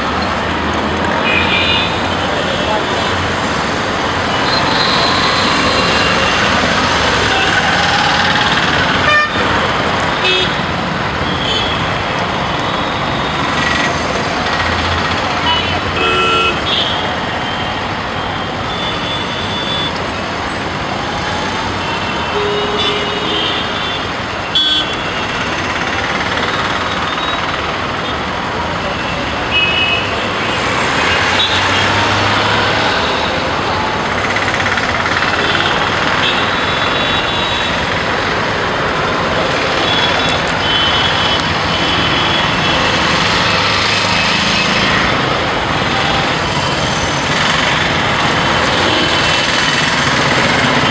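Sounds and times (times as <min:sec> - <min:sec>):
traffic engines and tyres: 0:00.0 - 0:50.9
vehicle horn toots: 0:09.0 - 0:09.5.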